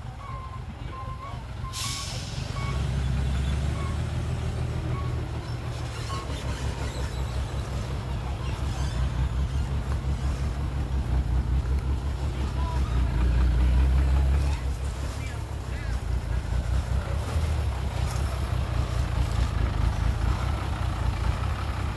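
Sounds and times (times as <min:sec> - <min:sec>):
heavy diesel engine running: 0:00.0 - 0:21.9
hiss of released air: 0:01.7 - 0:02.6.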